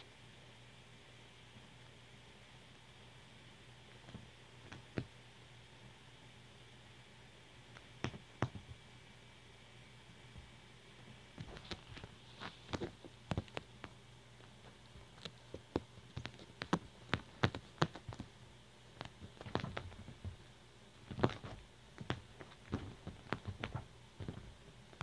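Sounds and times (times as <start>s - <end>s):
kitten paws tapping on fabric: 3.9s - 5.2s, 7.7s - 8.8s, 11.4s - 25.0s.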